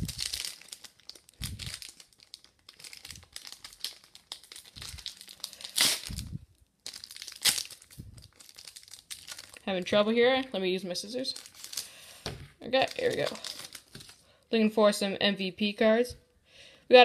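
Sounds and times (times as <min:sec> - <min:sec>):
foil wrapper crinkling: 0:00.0 - 0:10.0, 0:11.1 - 0:14.2.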